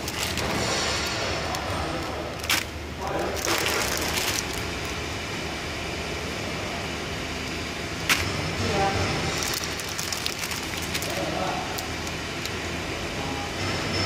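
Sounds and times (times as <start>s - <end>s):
plastic film crinkling: 0.0s - 5.1s, 9.2s - 12.6s.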